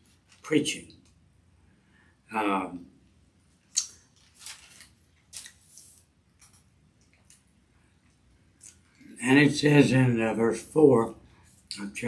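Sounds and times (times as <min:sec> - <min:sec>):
thin pages rustling: 0:04.0 - 0:07.4.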